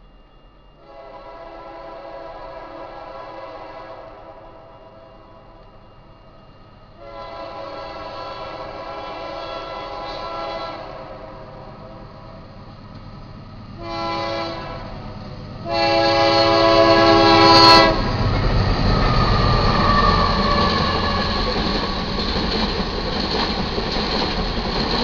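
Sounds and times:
low rumble of passing locomotives: 0.0 - 25.0
locomotive air horn blasts: 0.8 - 5.5, 7.0 - 12.0, 13.8 - 15.0, 15.6 - 18.1.

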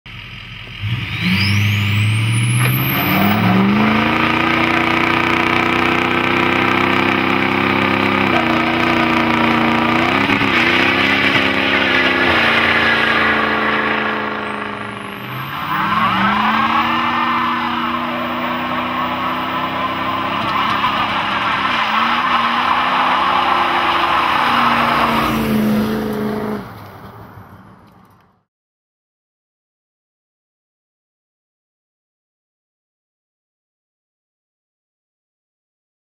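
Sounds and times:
diesel truck engine revving: 0.1 - 26.8
tires screeching: 0.7 - 28.2.

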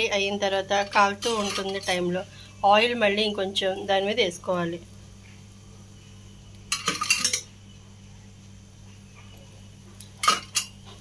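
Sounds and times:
low steady hum: 0.0 - 11.0
metal kitchen utensils clinking: 0.7 - 2.1, 6.7 - 7.5, 10.2 - 11.0.

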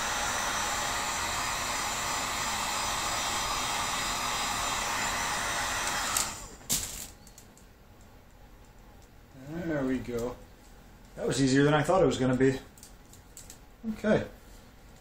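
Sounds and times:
heat gun blowing: 0.0 - 6.6.

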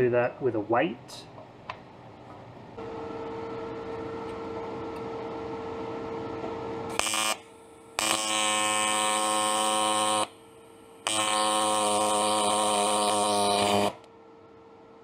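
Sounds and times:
steady hum: 1.1 - 15.0
welding arc buzzing: 6.9 - 14.1.

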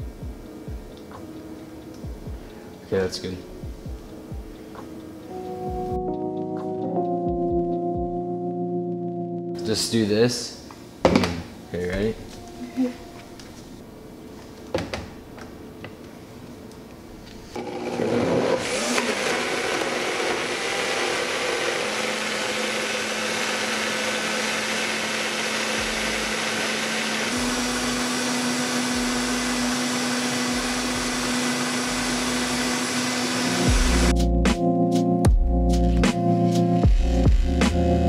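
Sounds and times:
music: 0.0 - 14.7, 25.8 - 26.7, 27.3 - 38.0
blender motor running: 17.6 - 34.1.

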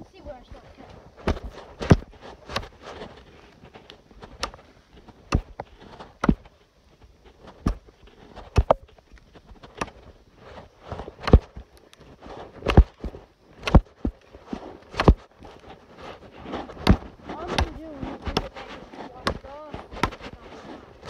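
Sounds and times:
hatchet chopping wood: 1.2 - 2.8, 5.2 - 6.5, 8.4 - 8.9, 9.7 - 10.0, 10.9 - 11.6, 12.6 - 14.2, 14.9 - 15.2, 16.5 - 20.4.

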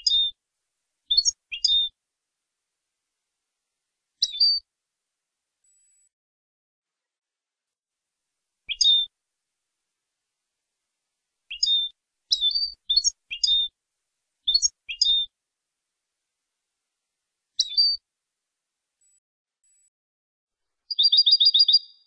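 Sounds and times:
goldfinch chirping: 0.0 - 0.3, 1.1 - 1.9, 4.2 - 4.6, 8.7 - 9.1, 11.5 - 13.7, 14.5 - 15.3, 17.6 - 18.0, 20.9 - 22.0.

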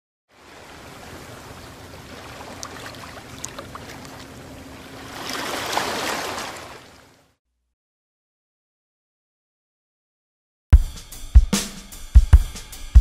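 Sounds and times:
seawater lapping and sloshing: 0.3 - 7.3.

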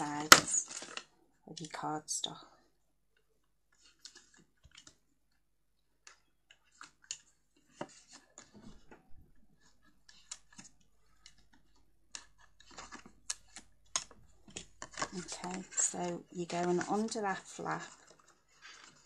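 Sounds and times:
hands handling cardstock: 6.1 - 19.0.

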